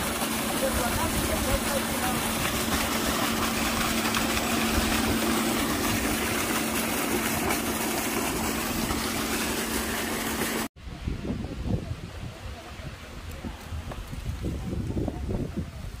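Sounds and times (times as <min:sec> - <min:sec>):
pump humming: 0:00.0 - 0:10.7
water gushing from a pipe: 0:00.0 - 0:10.7.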